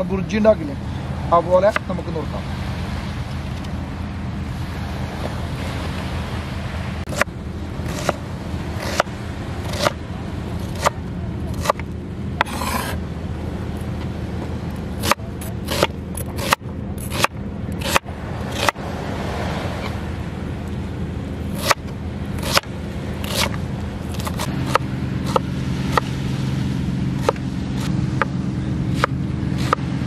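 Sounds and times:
steady low rumble: 0:00.0 - 0:30.0
knife chopping on a board: 0:15.0 - 0:18.0, 0:27.2 - 0:28.3.

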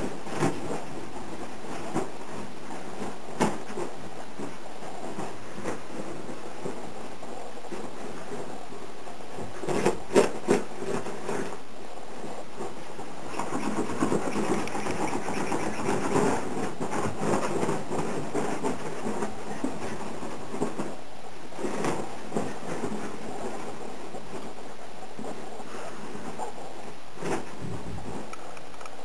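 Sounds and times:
claws scratching on fabric: 0:12.2 - 0:21.0.

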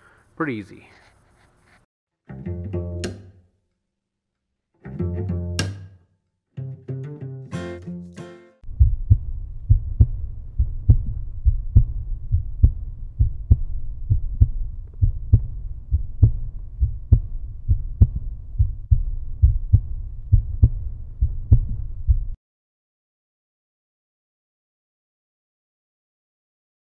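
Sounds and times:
deep low thumping pulse: 0:08.6 - 0:22.4.

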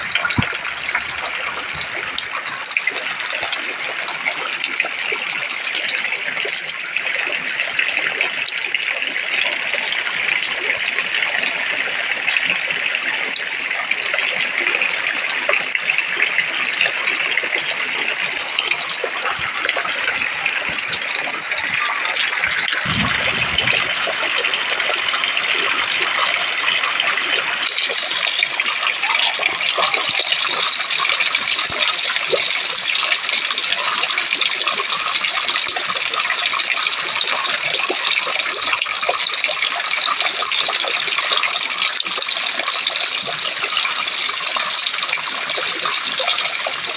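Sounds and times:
heavy rain pouring: 0:00.0 - 0:07.6, 0:16.4 - 0:41.5.

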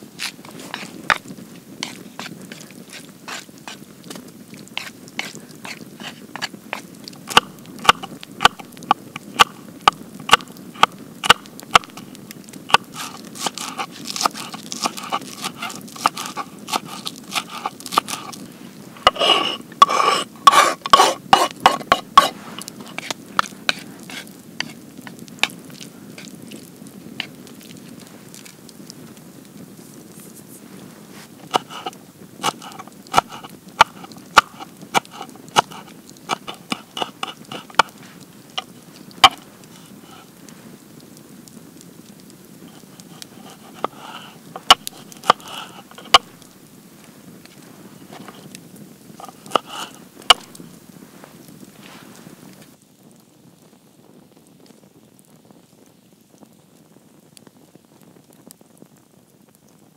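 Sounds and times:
knife chopping on wooden board: 0:07.3 - 0:08.7, 0:12.7 - 0:18.4, 0:19.1 - 0:24.8, 0:31.5 - 0:37.9, 0:49.5 - 0:50.6.

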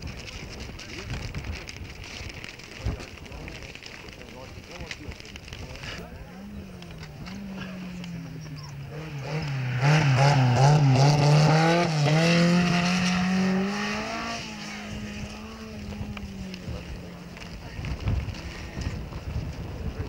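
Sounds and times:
rally car engine revving: 0:06.4 - 0:20.0.

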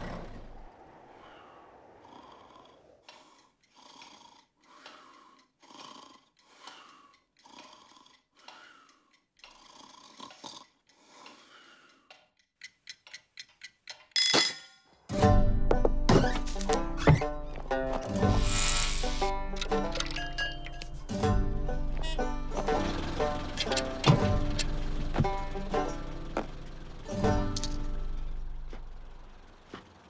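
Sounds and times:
slow regular breathing: 0:00.0 - 0:13.3
music: 0:15.1 - 0:28.6.

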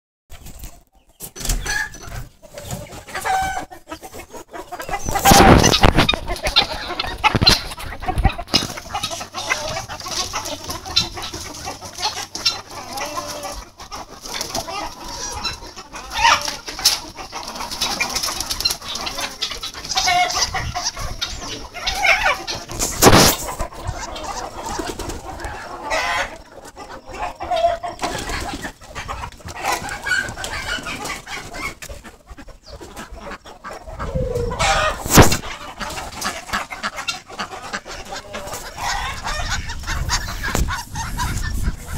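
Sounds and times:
chickens clucking: 0:00.3 - 0:41.9.

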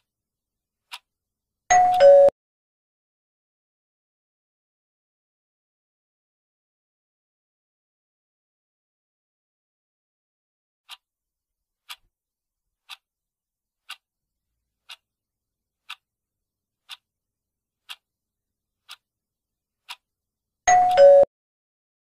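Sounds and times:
clock ticking: 0:00.9 - 0:01.1, 0:01.7 - 0:02.3, 0:11.8 - 0:12.1, 0:12.8 - 0:13.1, 0:13.8 - 0:14.1, 0:14.8 - 0:15.1, 0:15.8 - 0:16.1, 0:16.8 - 0:17.1, 0:17.8 - 0:18.1, 0:18.8 - 0:19.1, 0:19.8 - 0:20.1.

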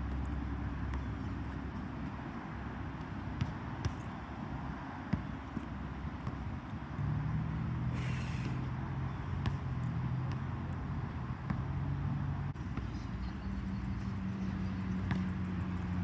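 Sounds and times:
outdoor background noise: 0:00.0 - 0:16.0
basketball bouncing on court: 0:00.7 - 0:02.2, 0:02.8 - 0:04.2, 0:05.0 - 0:06.6, 0:09.3 - 0:11.8, 0:14.9 - 0:16.0.

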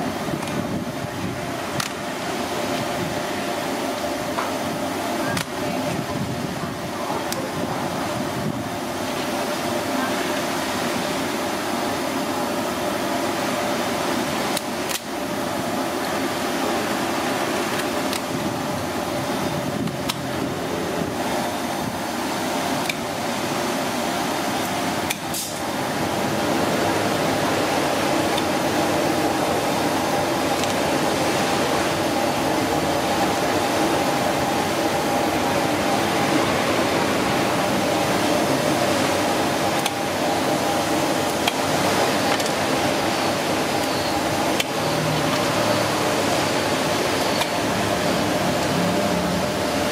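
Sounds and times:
ventilation fan drone: 0:00.0 - 0:49.9.

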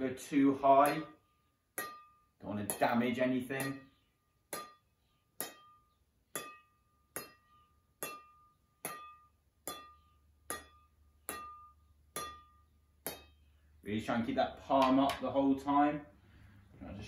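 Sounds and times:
ball pinging off racket: 0:00.8 - 0:01.2, 0:01.8 - 0:13.4.

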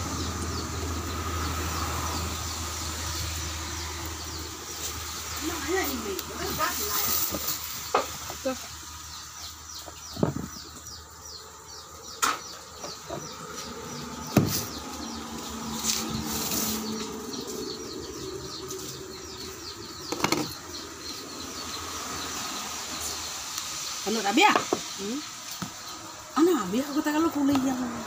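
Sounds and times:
knocks and clicks of containers: 0:20.1 - 0:20.6.

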